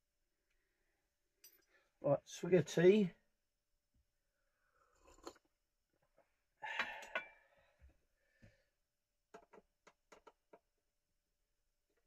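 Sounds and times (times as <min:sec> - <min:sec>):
faint clicks and taps of handling parts: 0:01.4 - 0:01.7, 0:09.3 - 0:10.8.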